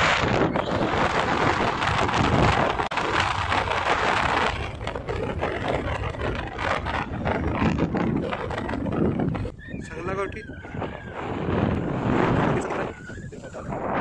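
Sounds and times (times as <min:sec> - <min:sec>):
motorcycle engine: 0:00.0 - 0:10.0
road noise: 0:00.0 - 0:10.0
wind rushing over microphone: 0:00.0 - 0:14.0.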